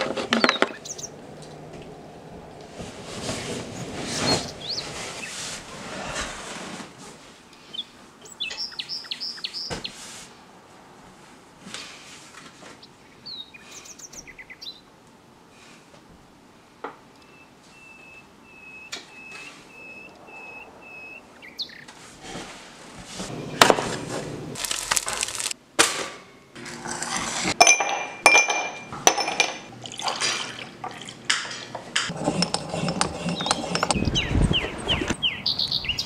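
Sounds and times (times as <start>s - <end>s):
glass and dishes clinking: 27.6s - 34.0s
liquid pouring: 29.7s - 31.4s.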